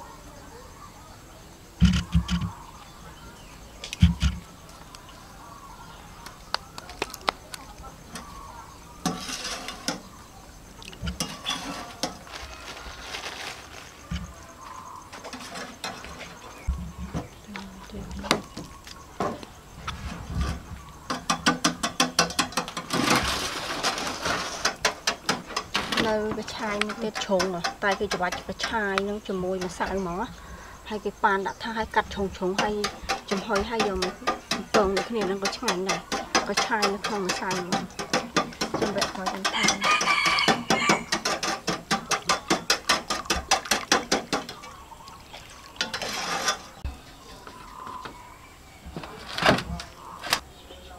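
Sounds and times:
rustling scrape: 0:09.0 - 0:10.0, 0:11.2 - 0:14.5, 0:19.8 - 0:20.7, 0:22.9 - 0:24.8, 0:45.8 - 0:46.9.

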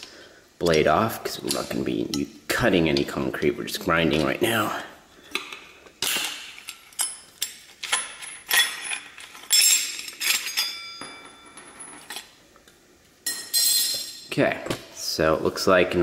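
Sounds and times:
wrench clinking on metal nut: 0:06.1 - 0:12.2.

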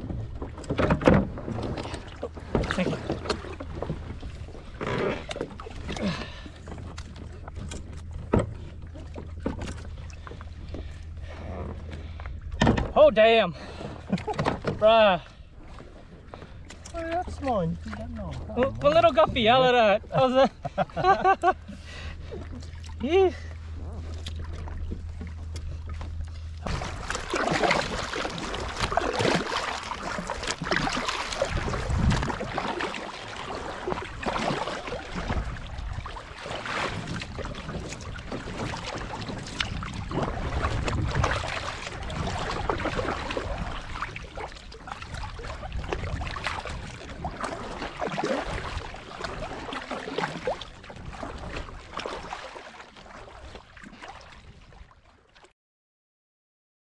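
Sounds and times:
water splashing against kayak hull: 0:00.0 - 0:55.5
wind gusting on microphone: 0:31.4 - 0:32.5.

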